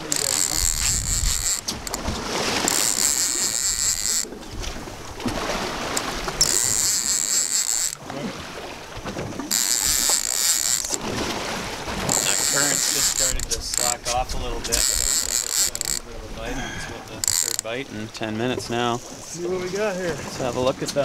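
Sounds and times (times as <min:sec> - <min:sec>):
fishing reel whirring: 0:00.0 - 0:04.5, 0:05.5 - 0:08.0, 0:09.4 - 0:11.1, 0:11.9 - 0:16.1, 0:17.0 - 0:17.7
water noise: 0:00.0 - 0:21.0
wind: 0:00.0 - 0:21.0.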